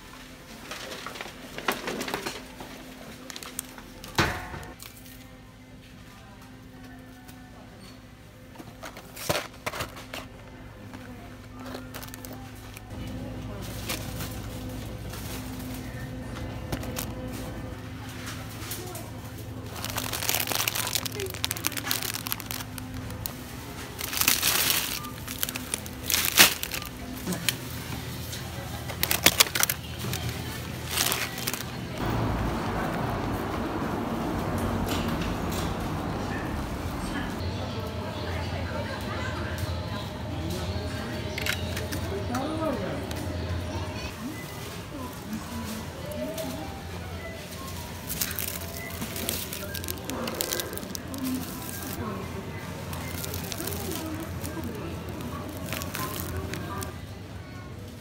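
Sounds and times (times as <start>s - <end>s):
faint background music: 0.0s - 58.0s
crinkling handling rustle: 10.9s - 32.0s, 44.1s - 57.1s.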